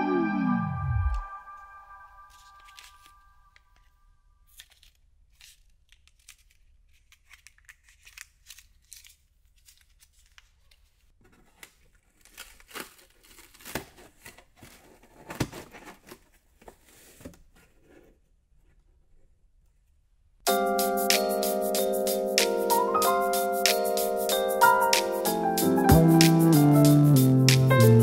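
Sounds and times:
plastic film crinkling: 2.3 - 15.0.

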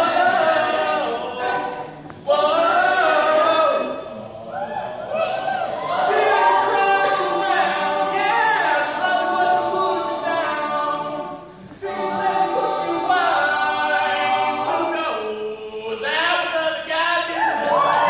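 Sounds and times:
male a cappella group singing: 0.0 - 18.0.

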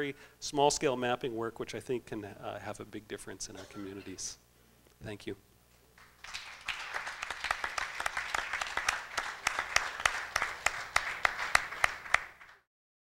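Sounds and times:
audience applauding: 6.0 - 12.7.

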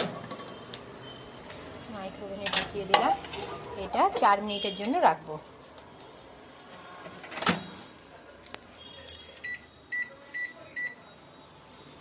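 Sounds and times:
microwave keypad beeping: 9.4 - 11.0.

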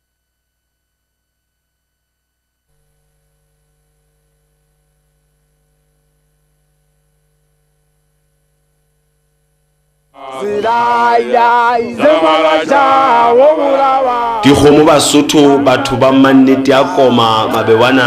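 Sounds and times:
faint steady hum: 0.0 - 18.0
person singing praise song: 10.2 - 18.0.

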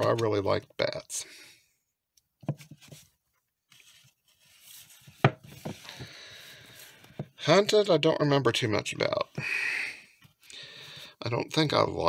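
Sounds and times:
books rubbing and sliding: 2.5 - 7.2.

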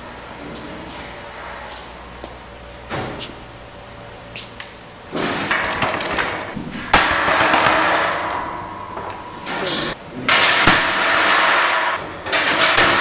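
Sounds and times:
metal frame clattering: 5.1 - 13.0
metal knocks: 5.1 - 13.0.

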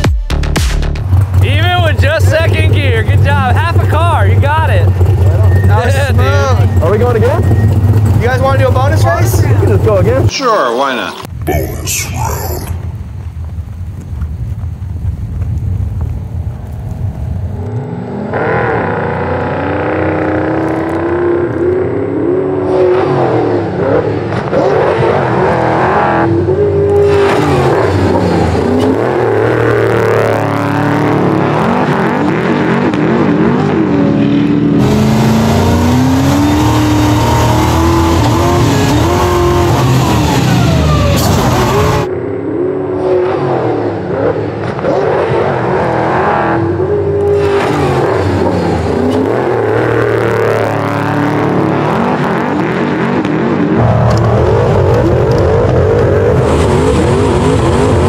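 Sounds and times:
truck engines revving hard: 0.0 - 10.3, 17.3 - 58.0.

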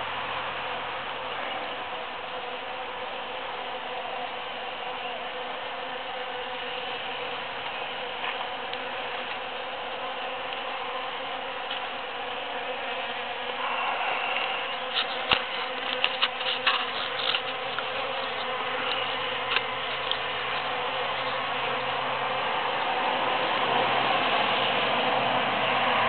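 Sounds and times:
bees buzzing: 0.0 - 25.8.

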